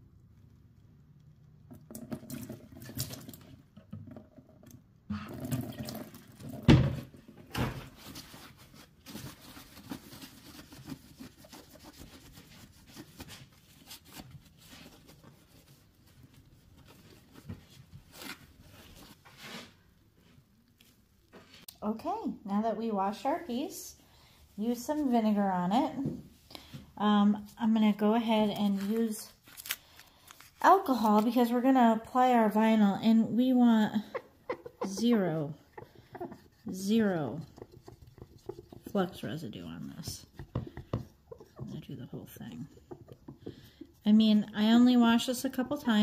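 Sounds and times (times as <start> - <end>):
paper towel wiping glass: 8.1 - 19.8.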